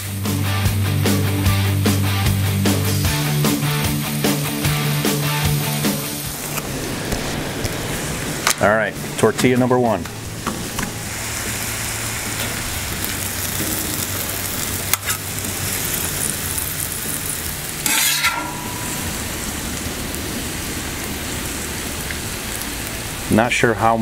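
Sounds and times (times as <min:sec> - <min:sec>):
meat and vegetables sizzling: 0:00.0 - 0:24.0
metal spatula scraping griddle: 0:13.5 - 0:16.2, 0:17.8 - 0:19.3.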